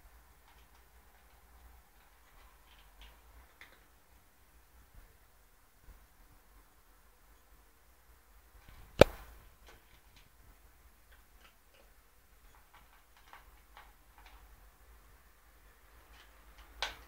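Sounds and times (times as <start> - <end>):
cat crunching dry kibble: 12.6 - 14.5.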